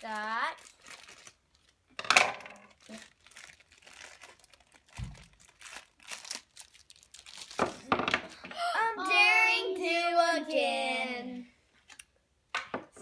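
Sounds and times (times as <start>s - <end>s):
foil bag crinkling and tearing: 0.0s - 1.8s, 2.6s - 7.9s.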